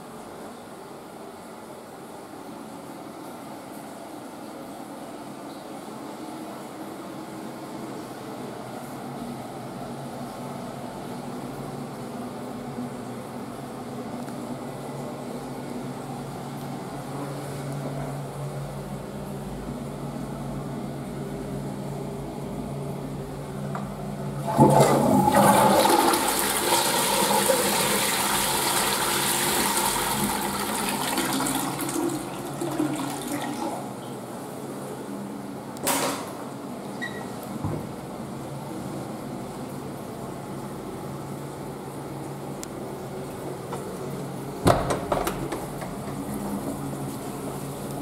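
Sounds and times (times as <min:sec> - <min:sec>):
steady low hum: 0:04.2 - 0:48.0
toilet flushing rush of water: 0:24.4 - 0:34.0.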